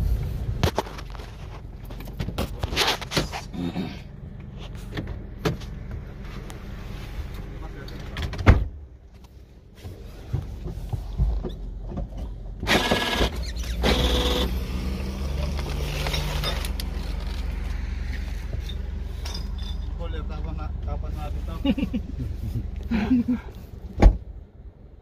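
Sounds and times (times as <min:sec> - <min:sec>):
low engine hum: 0:00.0 - 0:25.0
sharp thump: 0:24.0 - 0:24.3.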